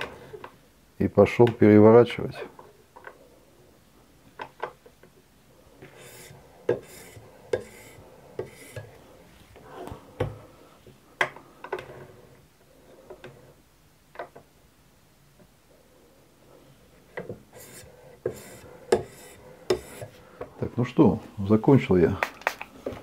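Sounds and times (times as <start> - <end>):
knife scraping: 5.9 - 8.9, 17.5 - 20.1.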